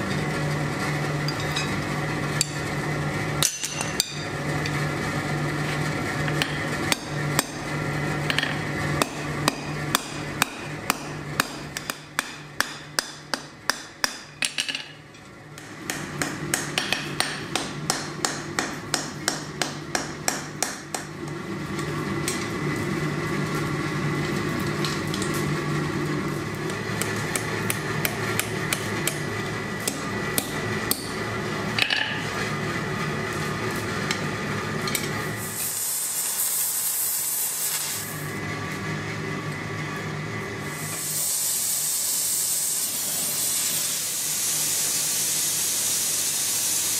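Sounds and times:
hammer striking hot metal on anvil: 8.3s - 14.8s, 15.6s - 21.1s, 29.8s - 31.2s.

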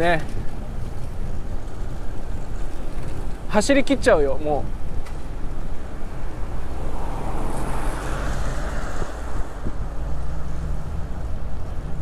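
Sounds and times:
low rumble of traffic: 0.0s - 12.0s
wind rushing over microphone: 0.0s - 12.0s.

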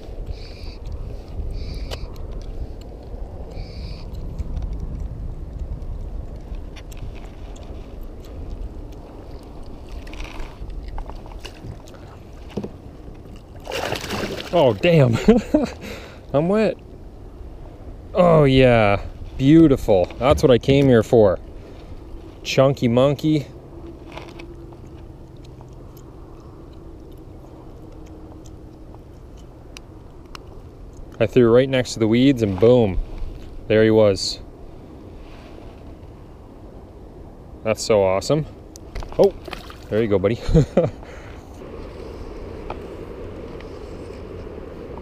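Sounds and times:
wind on microphone: 0.0s - 13.0s
faint steady hum: 0.0s - 45.0s
wind rumble: 0.0s - 45.0s
faint clicks and rustles: 4.1s - 13.6s
water against kayak hull: 9.0s - 15.6s
water splashing: 11.1s - 15.1s, 39.2s - 40.0s.

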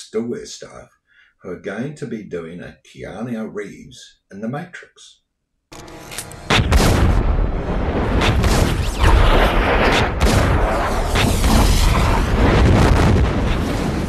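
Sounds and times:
heavy pistol shots: 6.5s - 7.2s, 8.2s - 13.9s.

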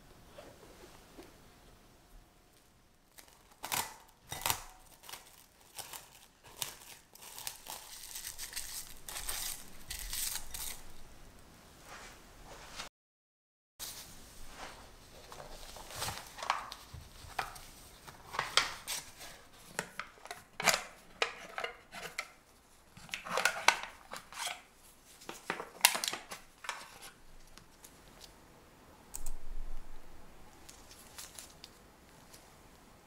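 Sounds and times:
foil crinkling: 3.1s - 11.0s, 15.1s - 22.3s, 22.9s - 28.3s, 30.6s - 31.8s
knife scraping foil tin: 3.2s - 10.9s, 18.4s - 22.4s, 23.0s - 27.2s.

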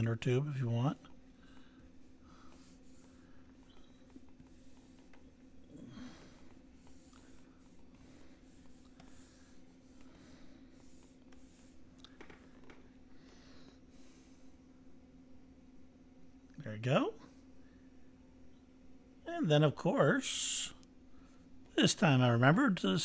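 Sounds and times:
stylus scratching on tablet: 0.0s - 11.9s
steady low hum: 0.0s - 23.0s.

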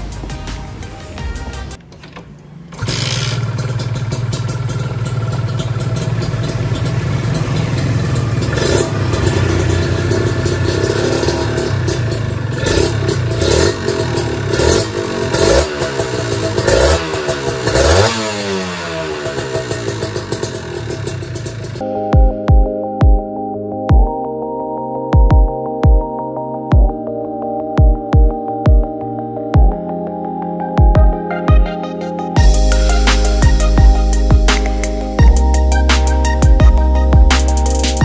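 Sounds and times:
motorcycle engine revving: 2.7s - 21.8s.

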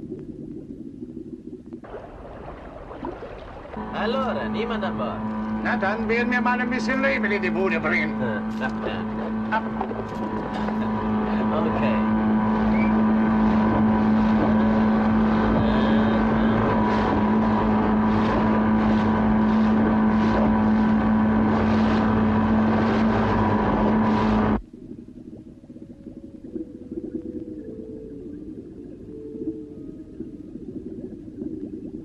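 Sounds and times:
low rumble: 0.0s - 32.0s
boat splashing through choppy water: 1.8s - 24.6s
outboard motor running: 1.8s - 24.7s.

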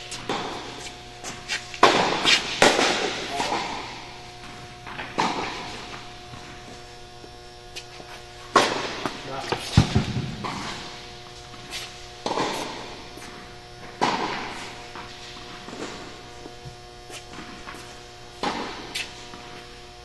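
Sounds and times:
electrical hum: 0.0s - 20.0s
tennis ball strikes echoing: 1.8s - 6.5s, 8.5s - 11.1s, 12.2s - 13.1s, 13.8s - 16.2s, 18.4s - 19.0s.

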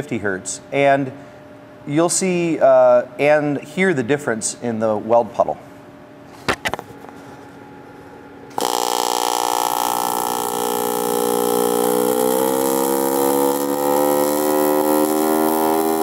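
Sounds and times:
welding arc buzzing: 8.5s - 16.0s.

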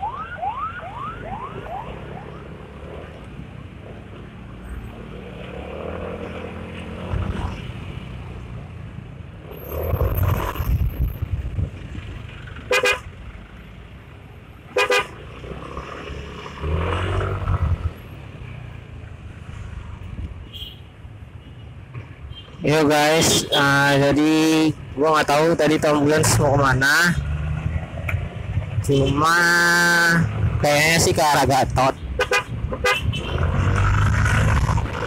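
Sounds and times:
traffic noise: 0.0s - 35.0s
scooter horn honking: 12.7s - 13.0s.

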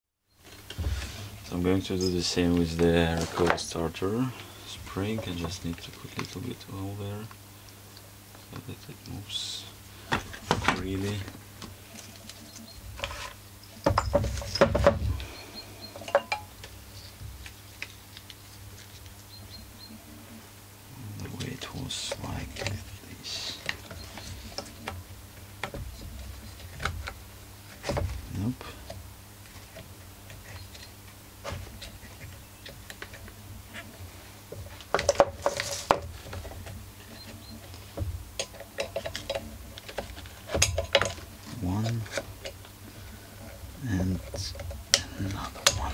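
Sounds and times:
parts clattering: 10.1s - 19.0s, 21.2s - 45.9s.

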